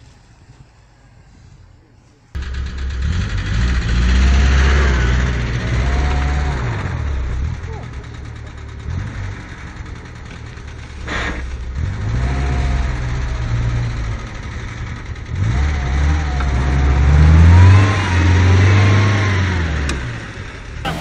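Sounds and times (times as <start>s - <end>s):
car engine revving hard: 2.4s - 21.0s.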